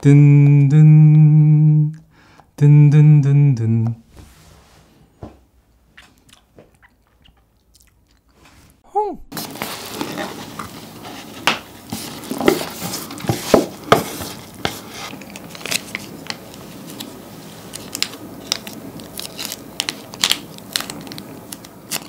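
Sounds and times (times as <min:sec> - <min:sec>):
plastic sachet crinkling: 0:15.1 - 0:22.0.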